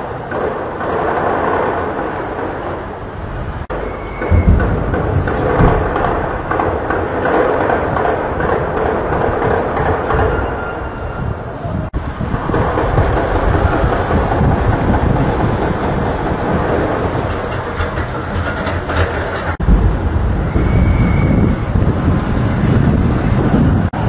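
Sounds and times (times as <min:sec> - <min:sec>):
heavy low rumble: 0:00.0 - 0:24.0
distant gunfire rattle: 0:03.7 - 0:10.4.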